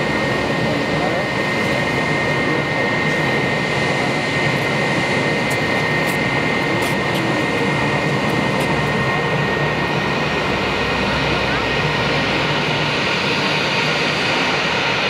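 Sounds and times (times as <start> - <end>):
jet engines whining: 0.0 - 15.0.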